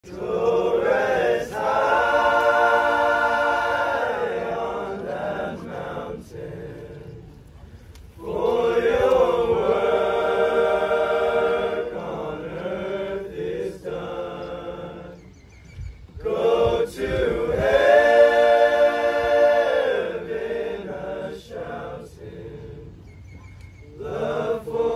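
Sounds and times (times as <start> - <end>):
boys' choir singing a cappella: 0.0 - 7.4, 8.2 - 15.4, 16.2 - 24.9.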